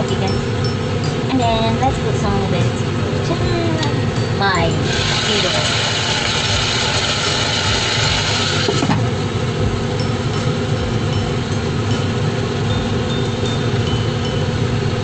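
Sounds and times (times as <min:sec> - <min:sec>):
water boiling in saucepan: 0:04.5 - 0:15.0.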